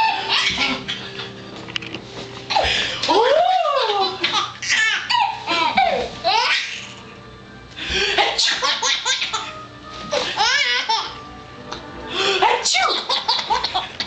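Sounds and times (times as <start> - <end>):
baby laughing: 0.0 - 1.3, 3.8 - 7.0, 8.2 - 11.2, 12.8 - 14.0.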